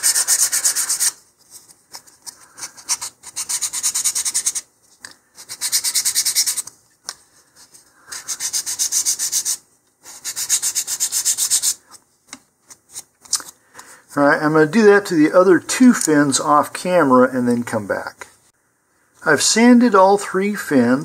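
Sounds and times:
sandpaper rubbing on wood: 0.0s - 1.2s, 2.8s - 4.7s, 5.4s - 6.7s, 8.2s - 11.8s.

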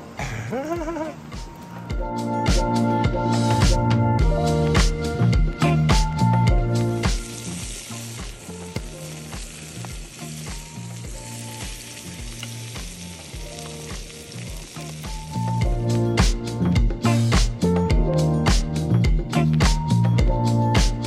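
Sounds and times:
fish sizzling in a pan: 4.6s - 17.6s.

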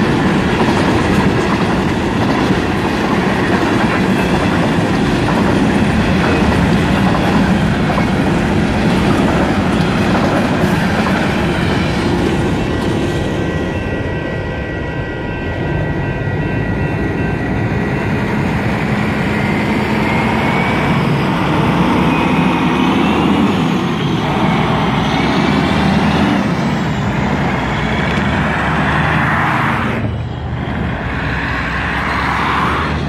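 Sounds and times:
crossing signal bell ringing: 11.4s - 28.2s
truck and cars driving past: 21.8s - 33.0s.

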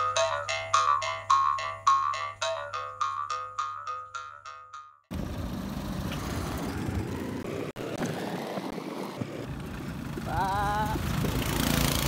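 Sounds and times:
truck passing: 5.1s - 12.0s
vehicle driving on gravel: 5.1s - 12.0s.

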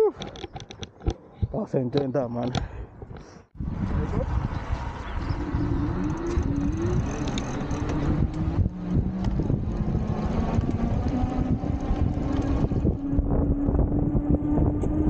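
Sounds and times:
wind buffeting microphone: 2.6s - 15.0s
electric bike motor hum: 3.6s - 15.0s.

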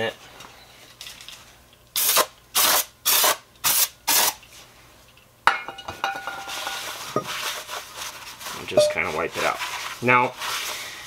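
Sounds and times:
towel wiping inside metal drum: 6.6s - 11.0s.

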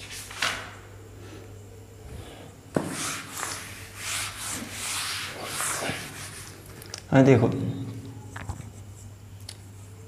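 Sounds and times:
eraser scraping whiteboard: 2.7s - 6.6s.

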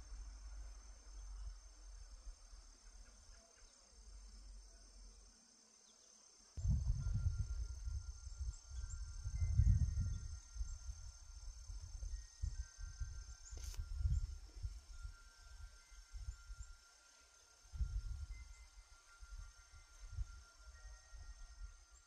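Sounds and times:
insects droning: 0.0s - 22.0s
wind rumbling on microphone: 6.6s - 16.8s, 17.7s - 21.9s
wind chime ringing: 14.0s - 22.0s.

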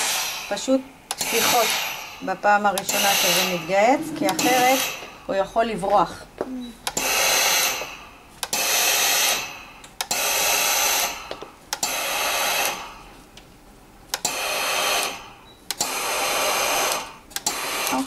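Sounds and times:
steam iron hissing: 0.0s - 5.2s, 7.0s - 11.2s, 11.8s - 12.9s, 14.2s - 15.2s, 15.8s - 18.0s
steam iron click: 2.7s - 3.6s.

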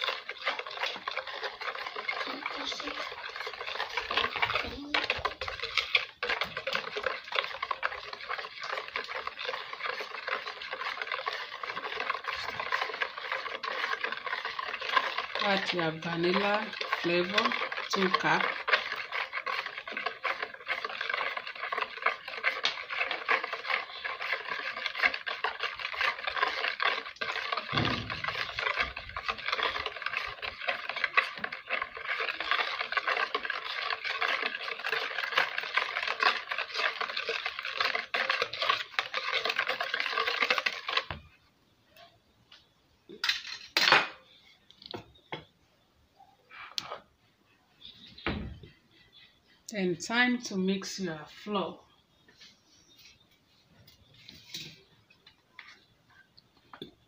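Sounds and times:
wire whisk beating batter in bowl: 0.0s - 41.4s.

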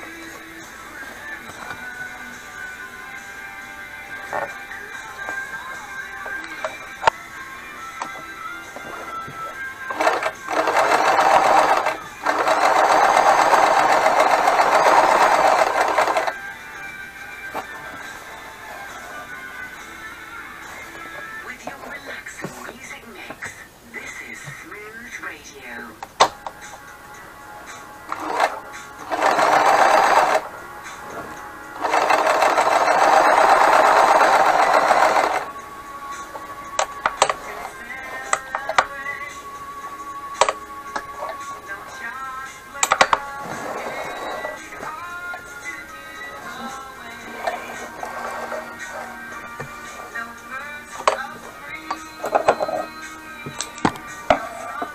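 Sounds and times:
sewing machine stitching: 9.9s - 16.4s, 28.1s - 30.5s, 31.8s - 35.5s, 42.8s - 44.9s, 46.4s - 49.2s.

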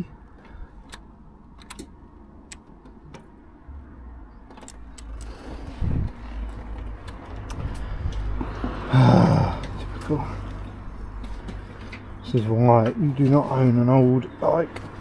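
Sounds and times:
low rumble: 3.6s - 11.4s.

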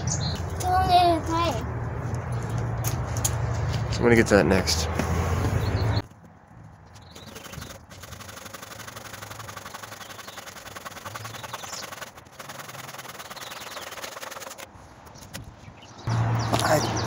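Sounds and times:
hand saw cutting wood: 7.2s - 14.7s.

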